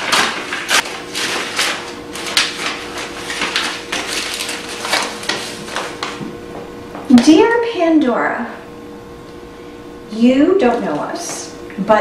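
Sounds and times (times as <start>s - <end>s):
paper rustling and tearing: 0.0s - 6.2s.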